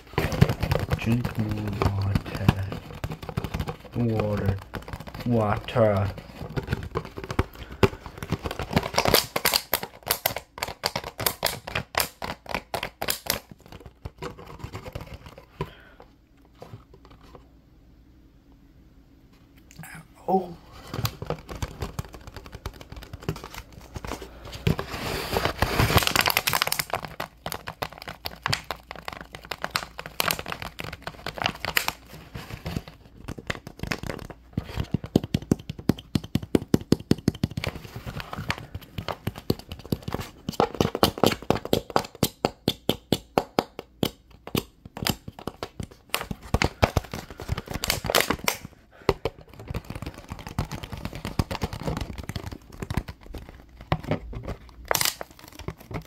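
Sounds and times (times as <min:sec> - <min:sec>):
tapping on plastic bottle: 0:00.0 - 0:15.8
plastic bottle crinkling: 0:00.0 - 0:16.0, 0:20.7 - 0:36.0, 0:44.5 - 0:56.0.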